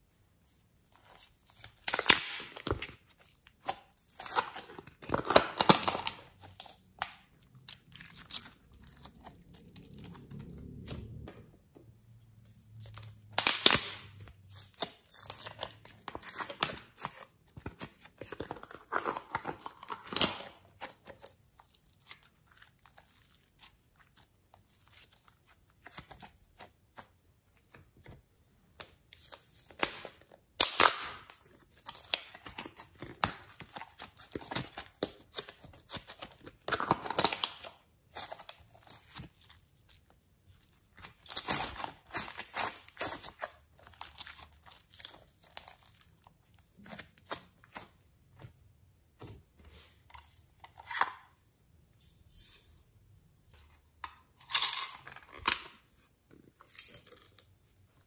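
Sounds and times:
plastic tubs crinkling: 1.2 - 10.3, 28.8 - 48.6.

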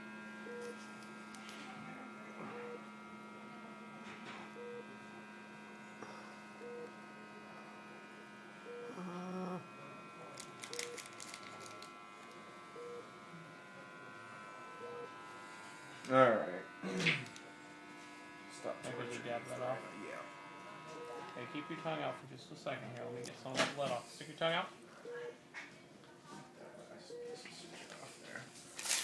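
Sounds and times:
electrical hum: 0.0 - 29.0
person moaning: 8.9 - 9.7.

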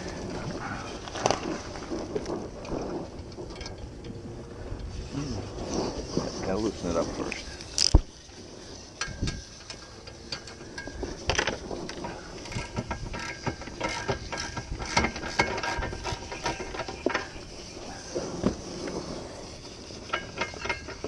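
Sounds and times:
metal trailer hitch clicking and rattling: 8.9 - 17.7, 20.0 - 21.0.

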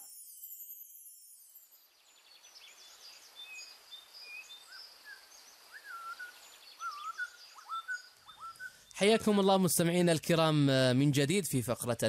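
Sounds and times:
birds chirping: 2.0 - 10.6.

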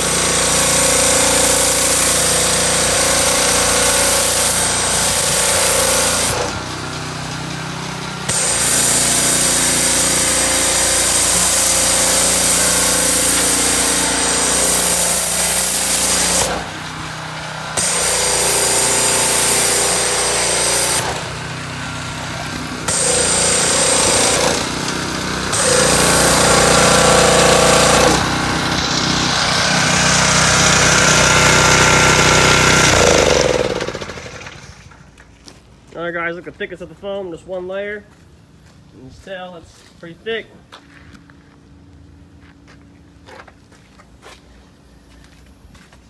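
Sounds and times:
hissing spray: 0.0 - 32.9
pressure washer hum: 0.0 - 40.7.

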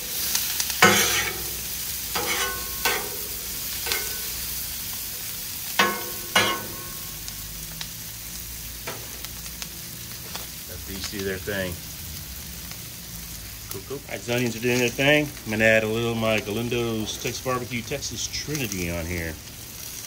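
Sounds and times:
onions sizzling on a griddle: 0.0 - 20.0
metal spatula scraping a griddle: 0.1 - 4.6, 5.8 - 7.2.

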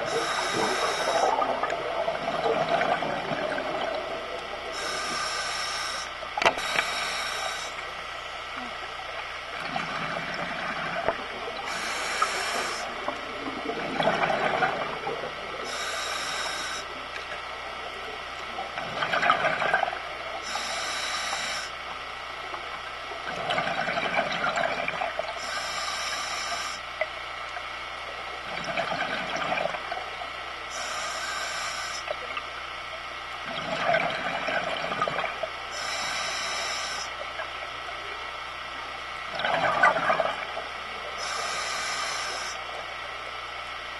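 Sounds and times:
regulator inhale hiss: 0.0 - 1.5, 4.6 - 8.7, 11.6 - 13.2, 15.6 - 17.0, 20.3 - 21.8, 25.4 - 26.9, 30.7 - 32.2, 35.7 - 37.2, 41.0 - 42.8
exhaled bubbles underwater: 0.0 - 20.9, 21.9 - 25.6, 26.6 - 31.0, 32.1 - 43.2.

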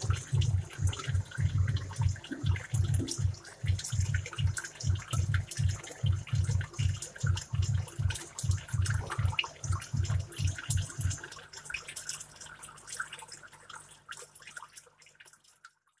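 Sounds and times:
low pulsing throb and hum: 0.0 - 11.2
aquarium air stone bubbling: 0.0 - 16.0.

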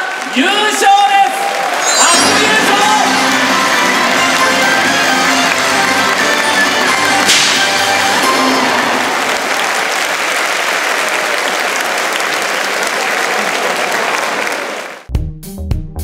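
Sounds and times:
crowd applauding: 0.0 - 15.1
music with regular beat: 15.1 - 16.0.

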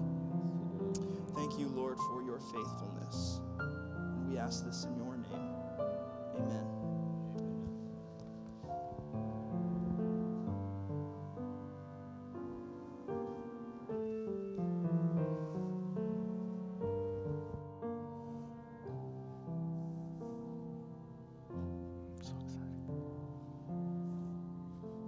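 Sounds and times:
grand piano slow piece: 0.0 - 25.0.

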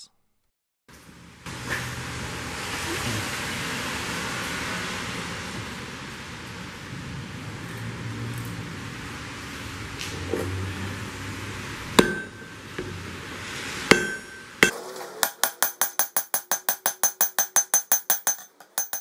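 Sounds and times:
hammer striking anvil: 12.0 - 13.1, 13.9 - 19.0.

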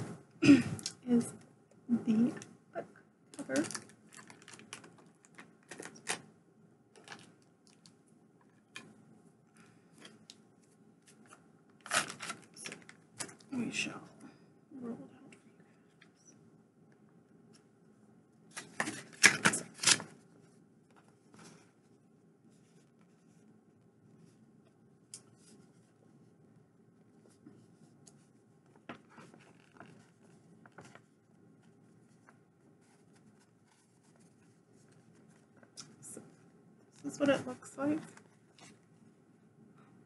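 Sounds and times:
room hum: 0.0 - 40.0
packaging crinkling: 3.4 - 6.2, 7.0 - 7.9, 11.8 - 13.4.

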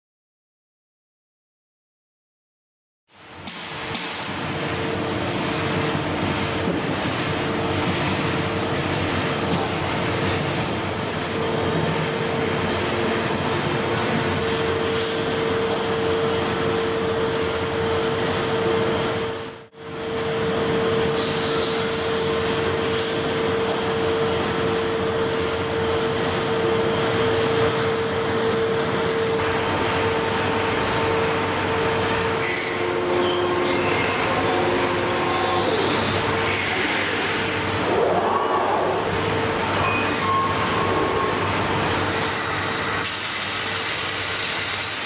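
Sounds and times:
constant machine tone: 3.2 - 44.3
welding machine humming: 3.3 - 45.0
extra machine tones: 38.6 - 41.8.

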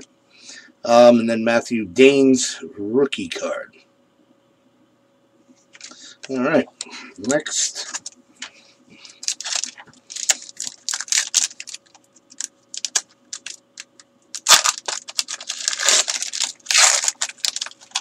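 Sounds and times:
foil wrappers tearing and crinkling: 9.0 - 18.0.

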